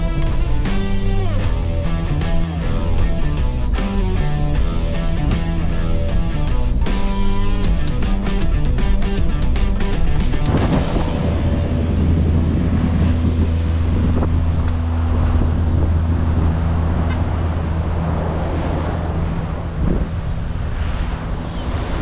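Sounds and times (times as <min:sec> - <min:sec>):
low engine hum: 0:00.0 - 0:22.0
wind buffeting microphone: 0:09.9 - 0:22.0.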